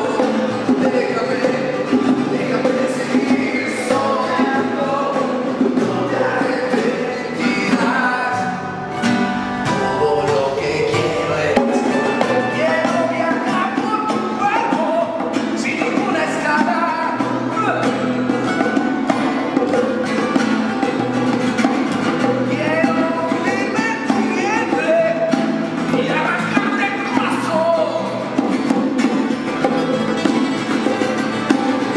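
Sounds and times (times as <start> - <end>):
man singing: 0.0 - 18.3, 22.2 - 28.4
acoustic guitars strumming: 0.0 - 31.9
bongos played by hand: 0.0 - 31.9.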